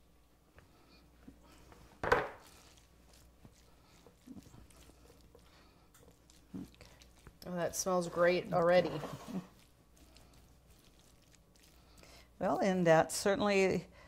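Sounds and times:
spatula scraping in baking dish: 7.0 - 11.4.

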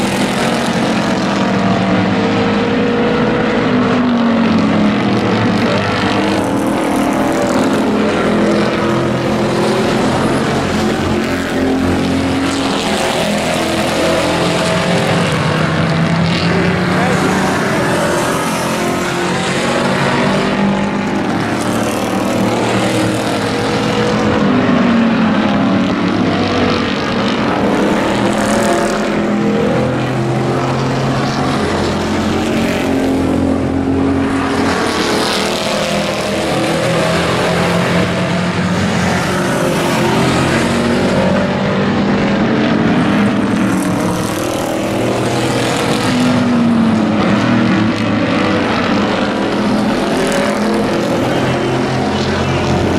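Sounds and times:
race truck engines revving: 0.0 - 52.9.

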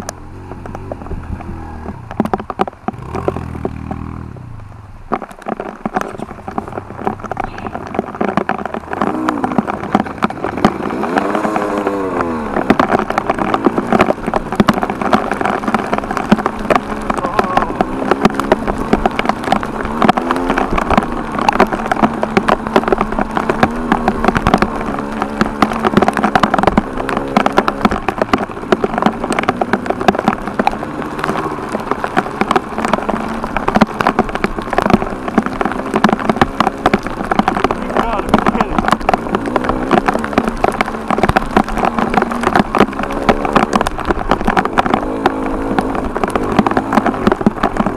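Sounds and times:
crackle of small clicks: 0.0 - 47.9
dirt bike engine revving: 8.8 - 33.5.

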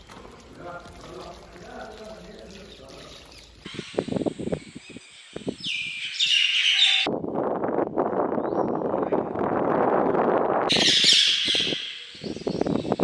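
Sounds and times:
birds chirping: 0.0 - 7.1, 10.7 - 13.0.

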